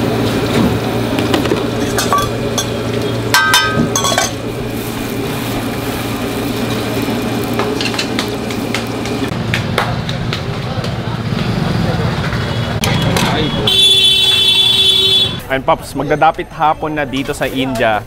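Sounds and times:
metal utensils and pots clinking: 0:01.3 - 0:04.5, 0:07.6 - 0:08.3.

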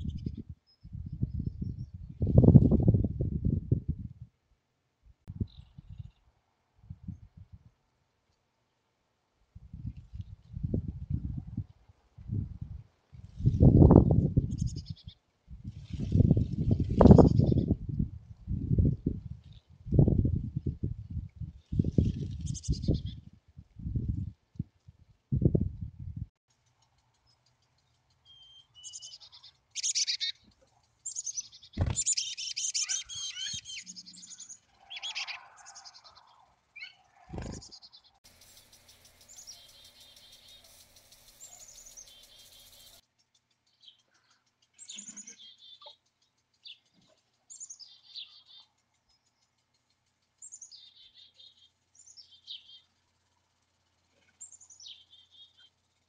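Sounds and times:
chickadees calling: 0:28.4 - 0:43.0.

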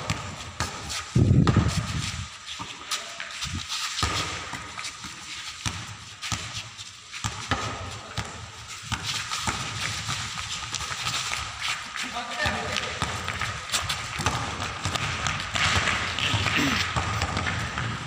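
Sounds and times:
basketball dribbling on concrete: 0:00.0 - 0:02.0, 0:05.6 - 0:06.6, 0:12.4 - 0:18.0.

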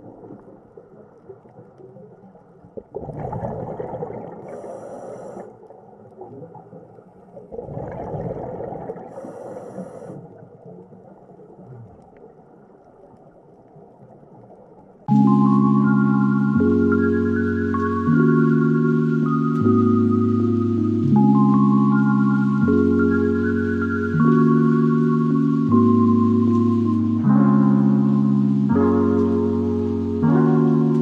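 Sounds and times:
exhaled air bubbling: 0:00.0 - 0:14.8
diver breathing through regulator: 0:04.4 - 0:05.5, 0:09.1 - 0:10.2.

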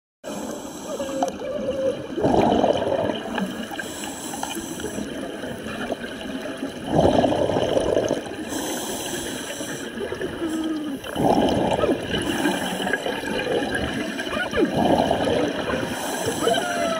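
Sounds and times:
water sloshing and gurgling: 0:00.3 - 0:16.9.

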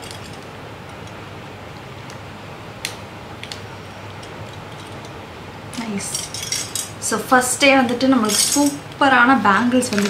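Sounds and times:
low room hum: 0:00.0 - 0:10.0
metal bangles clicking: 0:07.9 - 0:08.8.

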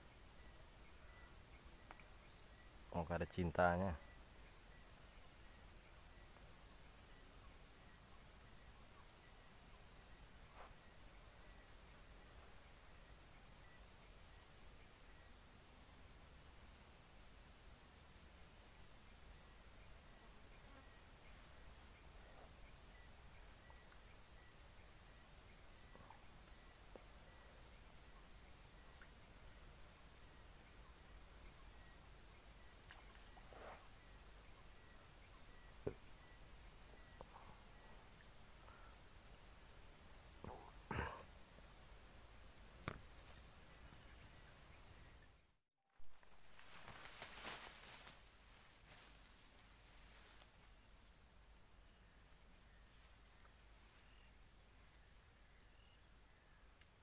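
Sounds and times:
high-pitched insect drone: 0:46.6 - 0:51.4, 0:52.5 - 0:55.2
faint high chirps: 0:47.1 - 0:56.8.

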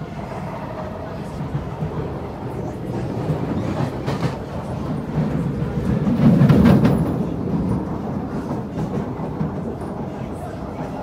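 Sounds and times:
train wheels rumbling on rail: 0:00.0 - 0:11.0
rail clicks: 0:00.7 - 0:11.0.

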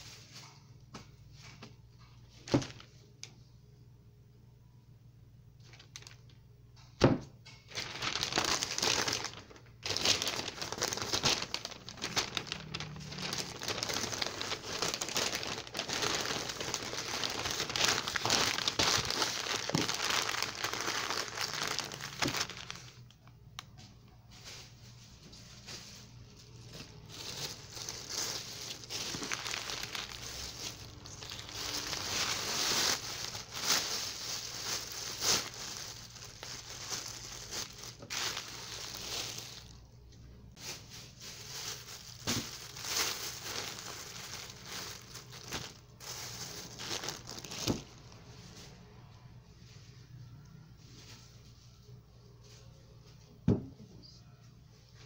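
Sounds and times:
plastic bag rustling: 0:00.0 - 0:03.0, 0:05.6 - 0:06.4, 0:07.6 - 0:23.4, 0:24.3 - 0:39.9, 0:40.5 - 0:48.9
newspaper rustling and crinkling: 0:05.6 - 0:06.2, 0:07.7 - 0:23.2, 0:24.3 - 0:39.9, 0:40.5 - 0:48.3.

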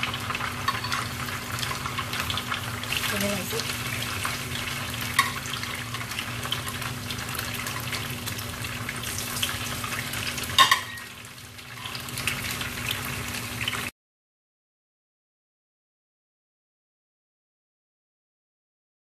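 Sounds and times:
tofu frying in oil: 0:00.0 - 0:13.9.

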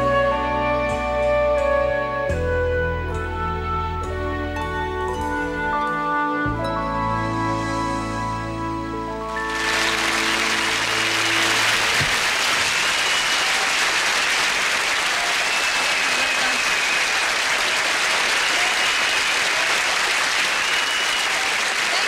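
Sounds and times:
audience applauding: 0:09.3 - 0:22.0.

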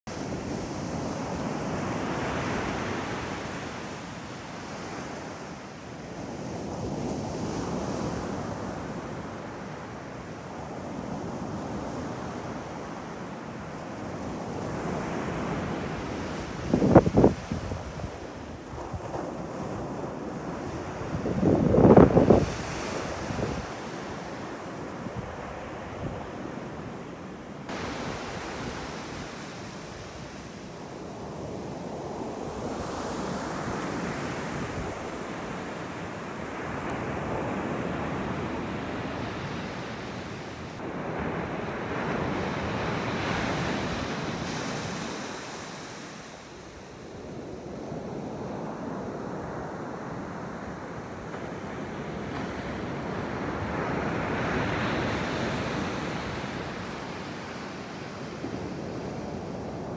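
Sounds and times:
ocean surf on sandy beach: 0:00.1 - 0:59.9
wind buffeting microphone: 0:14.6 - 0:24.0.

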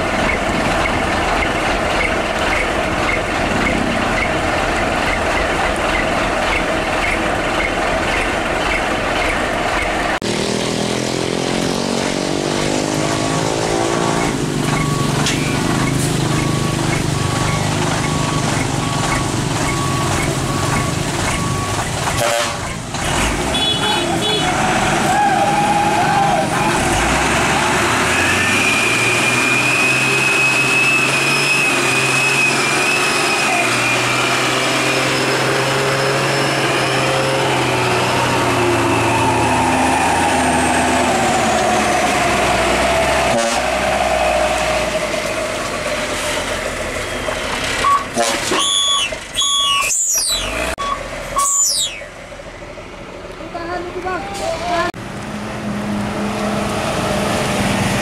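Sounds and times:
diesel truck engine revving: 0:00.0 - 0:58.0.

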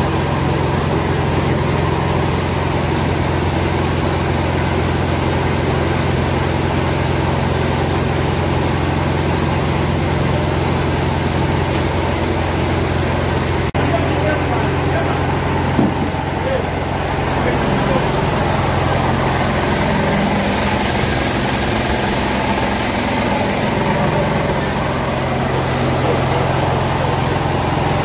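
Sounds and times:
grain mill machinery droning: 0:00.0 - 0:28.0.

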